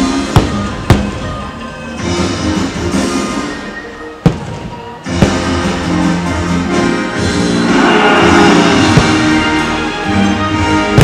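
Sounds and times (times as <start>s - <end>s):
fireworks show music: 0.0s - 11.0s
sharp firework bangs: 4.2s - 5.8s, 8.7s - 9.6s.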